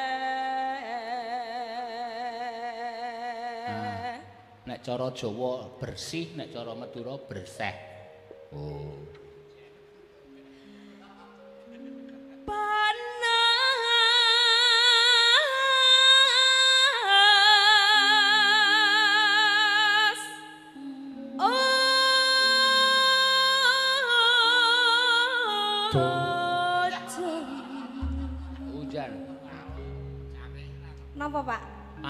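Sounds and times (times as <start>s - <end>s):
woman singing with vibrato: 0.0s - 4.6s, 12.4s - 30.2s
soft gamelan accompaniment: 6.1s - 32.0s.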